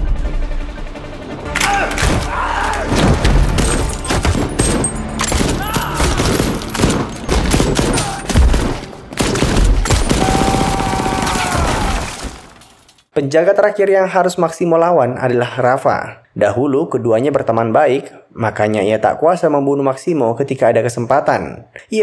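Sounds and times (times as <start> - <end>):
film music: 0.0 - 11.1
gunshots: 2.9 - 12.4.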